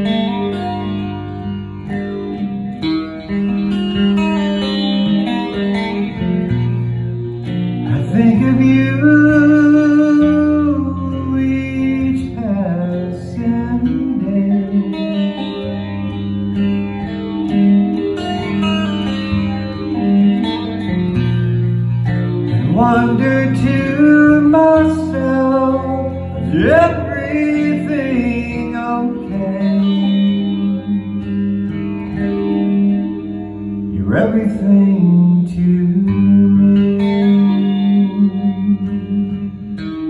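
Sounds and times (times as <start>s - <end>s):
guitar music: 0.0s - 40.0s
man singing: 7.9s - 15.5s, 22.6s - 31.1s, 33.9s - 39.6s.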